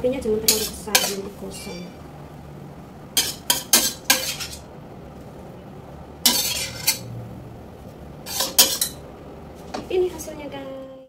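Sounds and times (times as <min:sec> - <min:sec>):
spatula scraping a wok: 0:00.4 - 0:01.9, 0:03.2 - 0:04.7, 0:06.2 - 0:07.1, 0:08.2 - 0:09.0.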